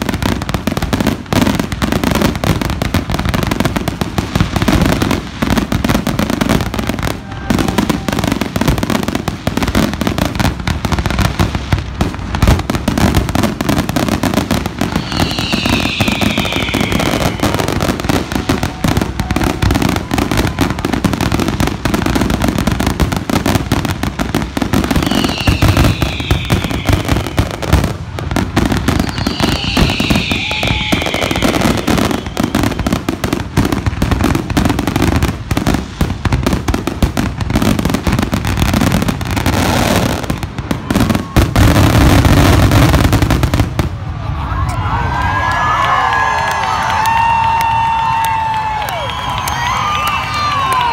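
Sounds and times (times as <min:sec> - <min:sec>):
fireworks booms and cracks: 0:00.0 - 0:44.4
high falling whistle: 0:14.6 - 0:20.8, 0:24.9 - 0:27.9, 0:28.6 - 0:33.0.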